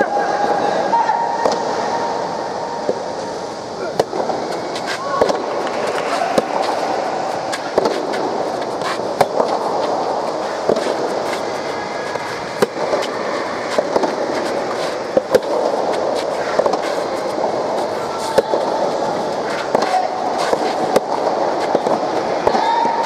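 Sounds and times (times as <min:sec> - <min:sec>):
tennis ball struck by rackets: 0:01.4 - 0:01.7, 0:04.0 - 0:23.0.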